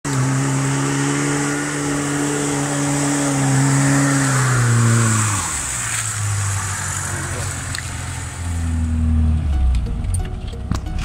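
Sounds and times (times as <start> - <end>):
car engine driving through mud: 0.1 - 9.8.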